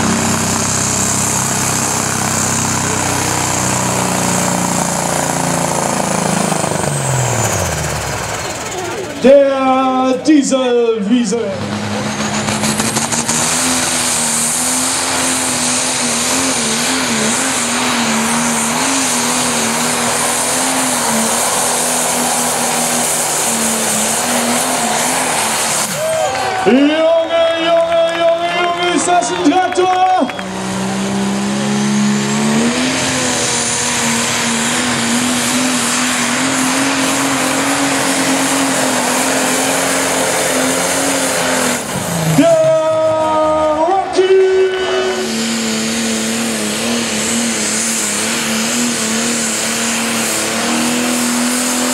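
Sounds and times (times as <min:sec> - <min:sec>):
diesel tractor engine at full throttle: 0:00.0 - 0:51.9
loud rushing noise: 0:11.4 - 0:51.9.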